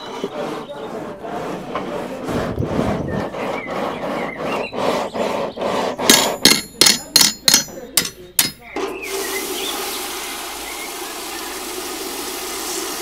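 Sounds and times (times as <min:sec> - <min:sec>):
hammer strikes on metal: 0:06.0 - 0:08.8.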